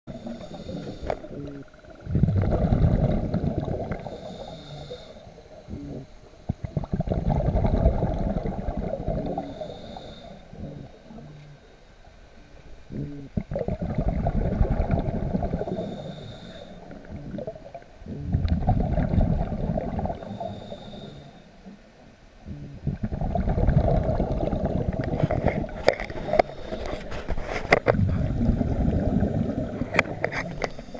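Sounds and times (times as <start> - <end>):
diver exhaling bubbles: 0.1 - 4.9, 5.7 - 11.6, 12.9 - 21.2, 22.5 - 30.9.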